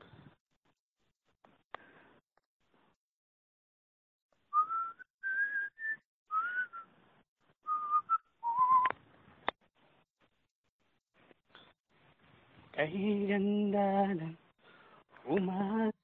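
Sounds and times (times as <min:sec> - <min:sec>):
man whistling a tune: 0:04.5 - 0:06.9, 0:07.6 - 0:09.0.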